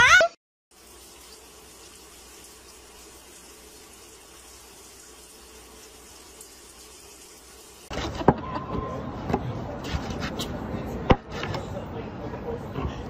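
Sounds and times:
water running into washing machine: 0.7s - 8.0s.

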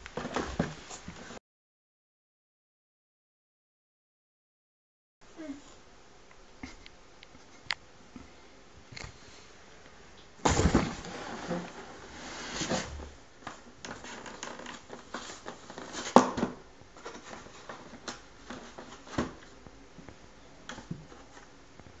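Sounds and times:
cardboard box rustling and scraping: 10.5s - 13.1s.

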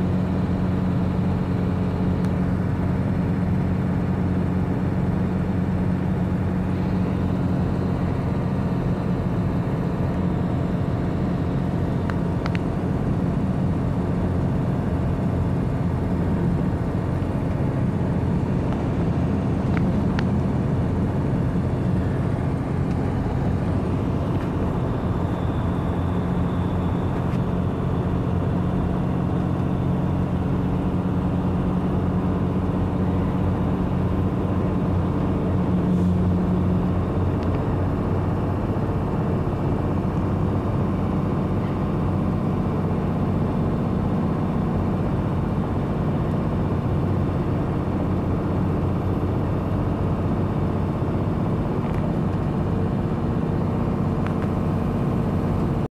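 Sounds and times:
diesel truck engine running: 0.0s - 55.9s
road and tyre noise: 0.0s - 55.9s.

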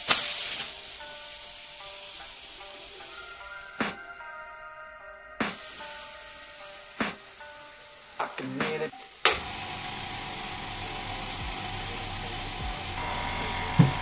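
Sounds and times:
air compressor motor humming: 9.4s - 14.0s.

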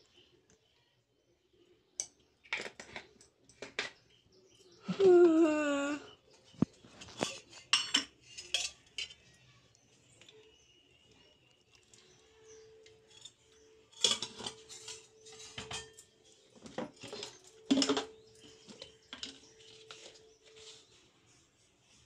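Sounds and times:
metal kitchenware clattering: 7.0s - 9.3s, 12.9s - 20.2s.

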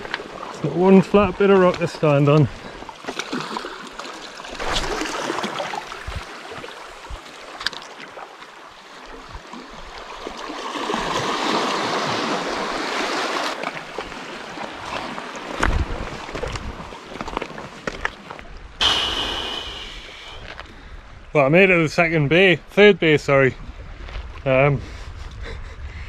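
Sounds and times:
seawater lapping on rocks: 0.0s - 18.4s.

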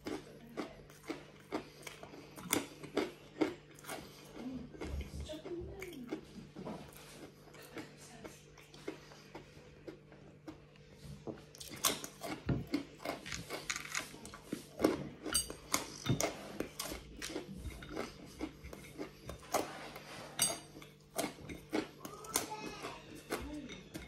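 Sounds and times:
person chewing crunchy food: 0.0s - 24.0s.

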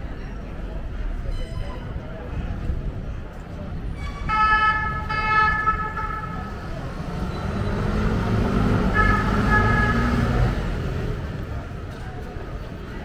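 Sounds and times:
low rumble of traffic: 0.0s - 13.0s
emergency vehicle siren: 4.3s - 6.9s.

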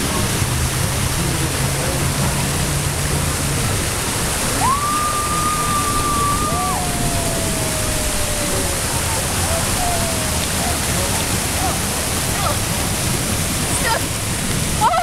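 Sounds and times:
water rushing and splashing: 0.0s - 15.0s.

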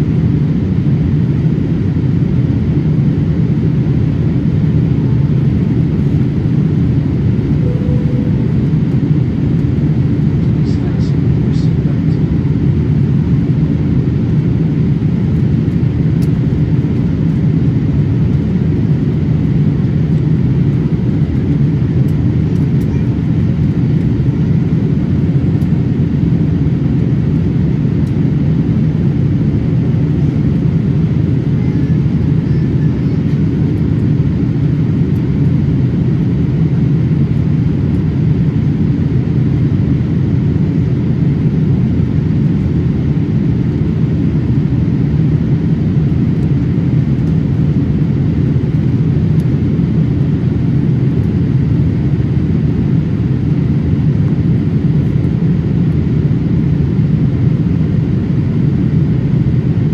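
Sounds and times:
airliner cabin rumble: 0.0s - 59.9s.

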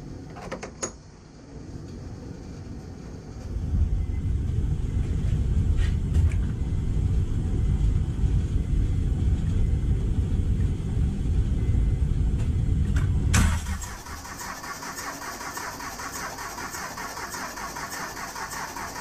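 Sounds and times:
starter motor cranking engine: 13.5s - 19.0s.

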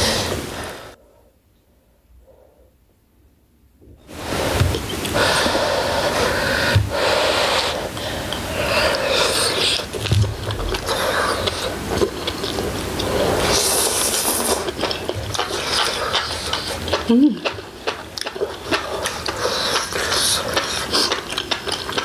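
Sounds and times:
slurping noodles: 4.2s - 17.1s, 18.2s - 22.0s
chewing: 8.0s - 22.0s.

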